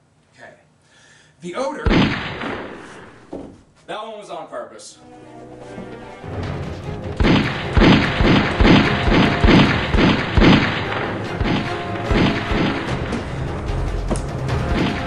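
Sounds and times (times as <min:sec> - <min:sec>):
gunshot sound effects: 0:01.8 - 0:03.3, 0:07.2 - 0:13.3, 0:14.6 - 0:15.0
background music: 0:04.9 - 0:15.0.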